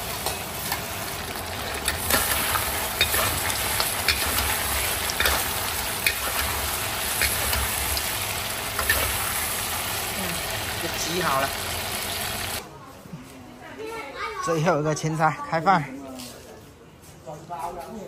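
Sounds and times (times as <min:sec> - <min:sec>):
metal spatula scraping wok: 0:00.0 - 0:10.1
food sizzling in a wok: 0:00.0 - 0:12.6.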